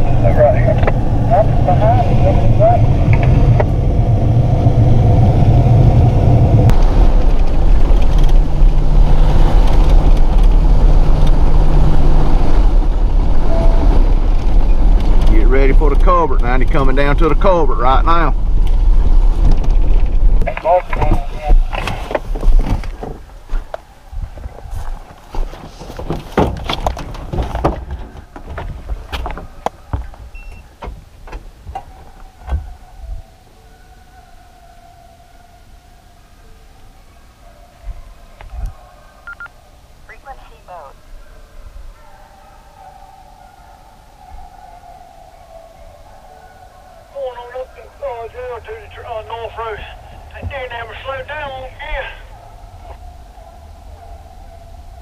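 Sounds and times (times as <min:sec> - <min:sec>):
wind rumble on microphone: 0:00.0 - 0:33.6, 0:37.8 - 0:38.9
tyre and road noise: 0:00.0 - 0:55.0.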